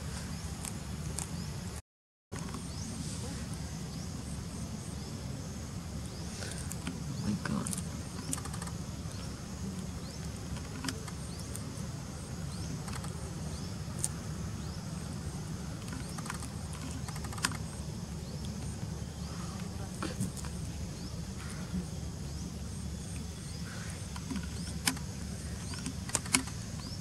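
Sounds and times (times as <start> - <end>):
high insect drone: 2.4 - 27.0
sharp clicks and ticks: 7.6 - 8.8, 12.8 - 13.2, 15.8 - 17.8, 24.1 - 26.9.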